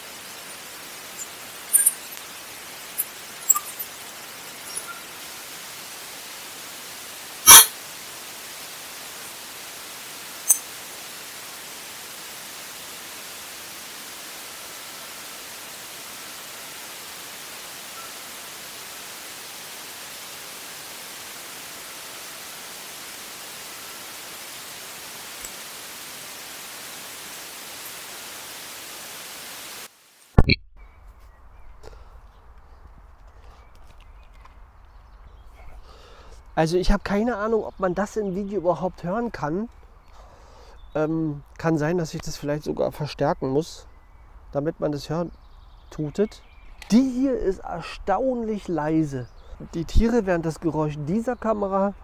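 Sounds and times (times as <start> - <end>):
bat detector hiss: 0.0 - 5.5, 7.3 - 9.4.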